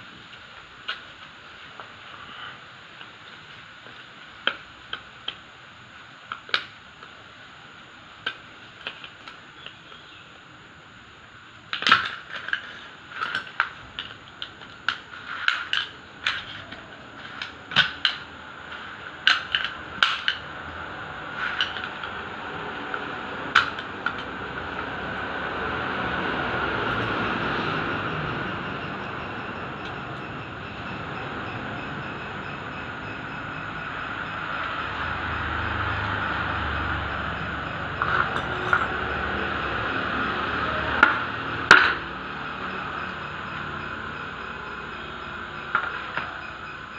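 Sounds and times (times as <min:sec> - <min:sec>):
steady rumble: 0:16.9 - 0:46.9.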